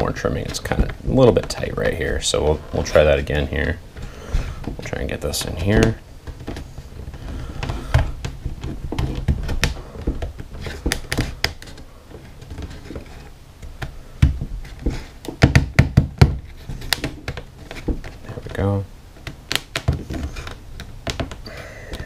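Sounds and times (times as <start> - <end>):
wooden knocks and taps: 19.2 - 22.0.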